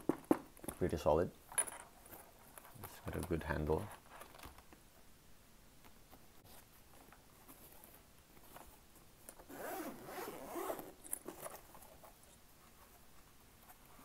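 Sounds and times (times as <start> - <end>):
zipper being pulled open: 9.4 - 11.7.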